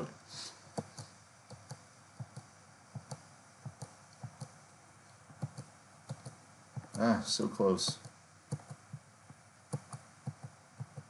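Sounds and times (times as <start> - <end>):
computer mouse clicking: 0.7 - 4.6, 5.3 - 7.1, 7.9 - 9.0, 9.7 - 11.0.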